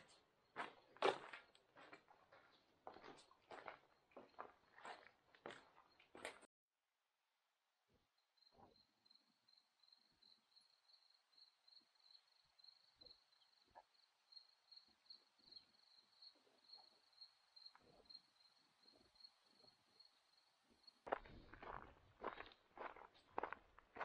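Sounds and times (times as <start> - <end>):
footsteps: 0.0 - 6.5, 21.1 - 24.0
insect chirping: 8.2 - 21.2.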